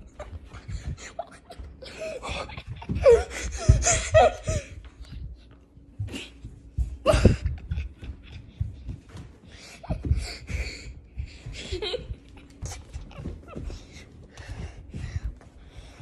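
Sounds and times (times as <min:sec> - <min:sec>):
boy laughing: 0:00.0 - 0:04.9, 0:07.0 - 0:09.0, 0:09.6 - 0:14.0.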